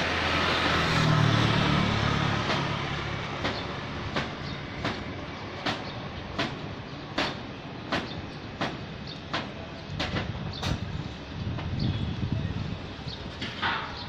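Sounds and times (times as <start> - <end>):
vehicle passing by: 0.0 - 5.1
sharp knocks: 2.4 - 10.8.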